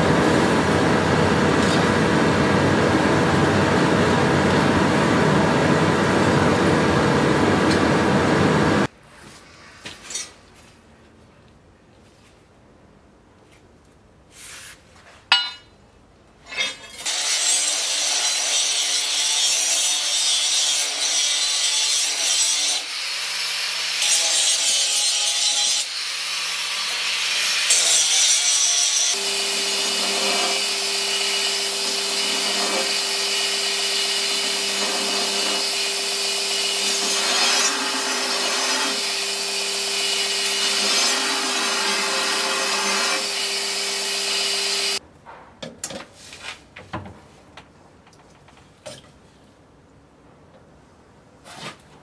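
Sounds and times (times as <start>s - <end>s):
electric grinder on steel: 16.9s - 45.0s.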